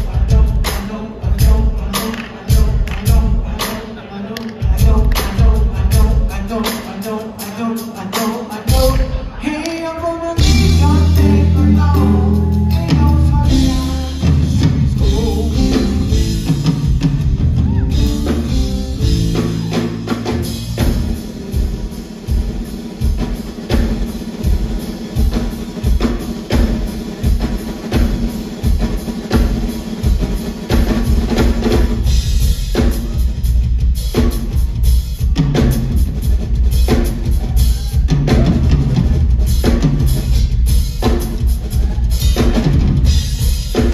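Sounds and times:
person singing: 0.0s - 22.0s.

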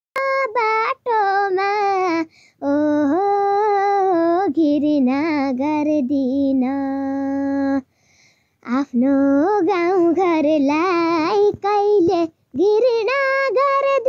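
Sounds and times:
girl singing with vibrato: 0.2s - 14.0s
singer breathing: 2.3s - 2.6s, 7.8s - 8.6s.

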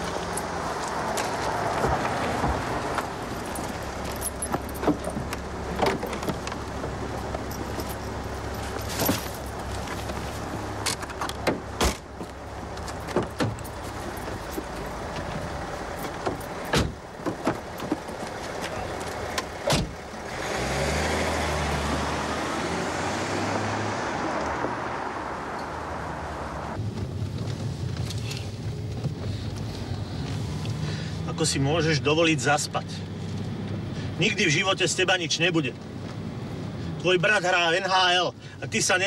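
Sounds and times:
car engine starting and running: 0.0s - 37.2s
clicks and knocks of car handling: 10.8s - 15.4s, 16.0s - 20.1s
car door shutting: 16.0s - 18.0s, 19.4s - 20.0s.

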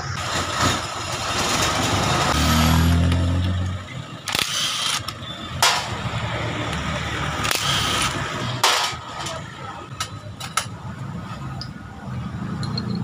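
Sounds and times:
cordless impact tool bursts: 4.3s - 5.1s, 7.4s - 8.2s.

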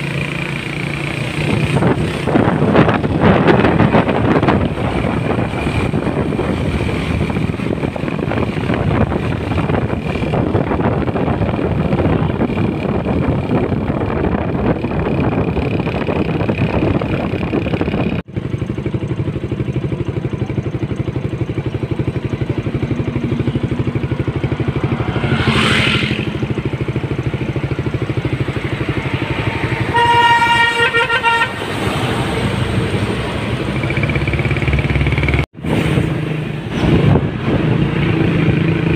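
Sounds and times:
traffic: 0.0s - 38.9s
heavy truck passing: 21.7s - 38.9s
horn toot: 29.5s - 31.9s.

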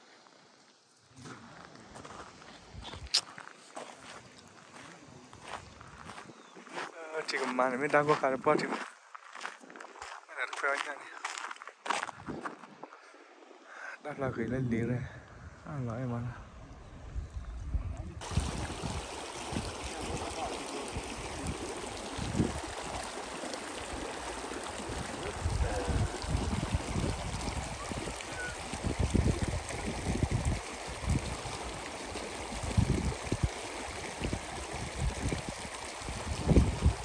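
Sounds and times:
wind buffeting microphone: 12.0s - 12.9s, 14.6s - 23.1s, 24.7s - 31.9s, 32.5s - 37.0s
creek rippling over stones: 18.2s - 37.0s.

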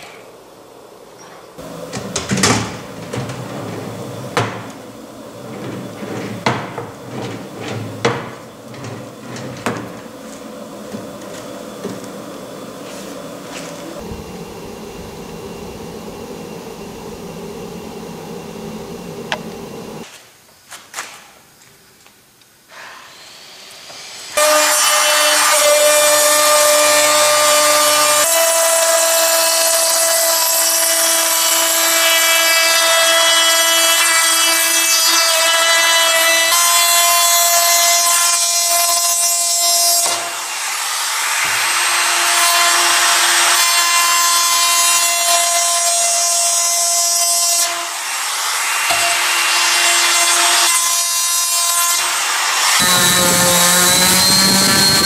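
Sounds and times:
router bit cutting wood: 3.9s - 20.0s, 23.1s - 55.0s
router motor whine: 8.4s - 20.0s, 52.2s - 55.0s.

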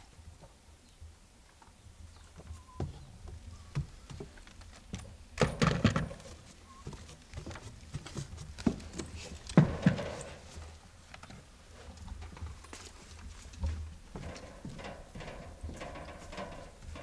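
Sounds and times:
climbing wooden ladder knocks: 2.8s - 10.6s, 13.5s - 17.0s.

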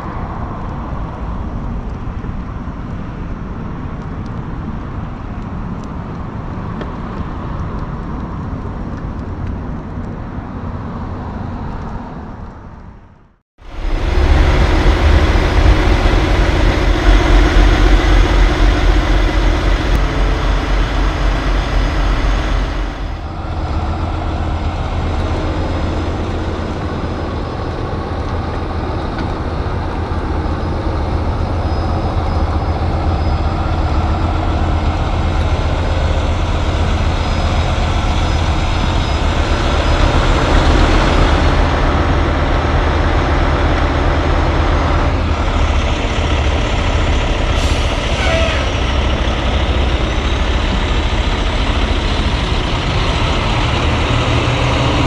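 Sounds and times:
truck diesel engines idling: 13.6s - 55.0s.

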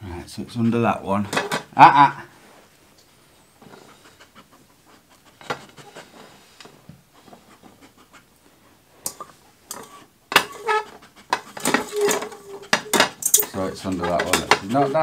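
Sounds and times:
plastic cups clattering: 1.2s - 1.8s, 9.1s - 15.0s.

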